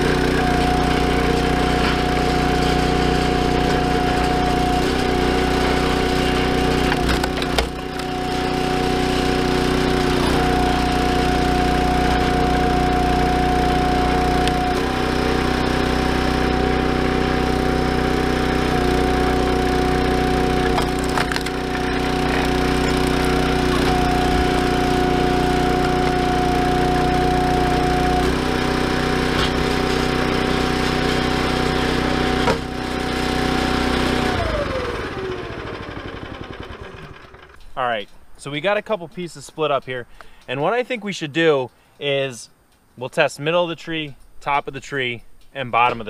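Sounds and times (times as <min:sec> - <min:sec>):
small gasoline engine running: 0:00.0 - 0:37.8
firewood splitting cracks: 0:03.6 - 0:08.3, 0:14.4 - 0:15.1, 0:20.6 - 0:26.3.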